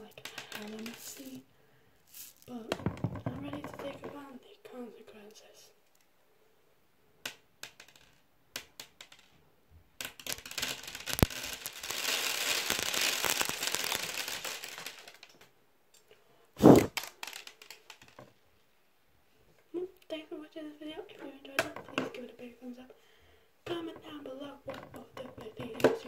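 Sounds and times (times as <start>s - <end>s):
plastic beads pouring and clattering: 0.1s - 1.4s, 2.0s - 2.6s, 10.0s - 15.4s, 16.6s - 18.2s
loud thump: 16.6s - 16.9s.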